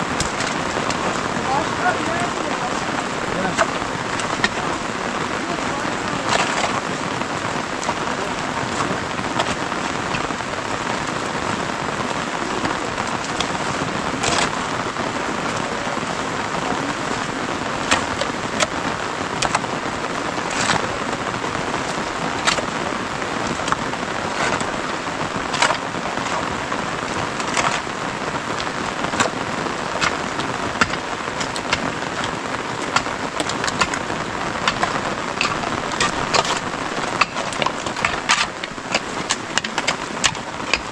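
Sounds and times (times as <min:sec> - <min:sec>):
rain on a metal roof: 0:00.0 - 0:40.9
sharp knocks and ticks: 0:30.0 - 0:34.0.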